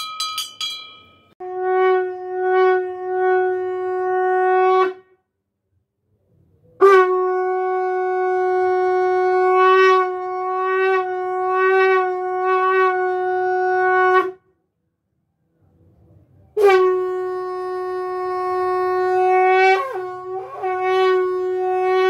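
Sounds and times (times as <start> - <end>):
conch shell blown: 1.4 - 5.2, 6.8 - 14.5, 16.6 - 22.0.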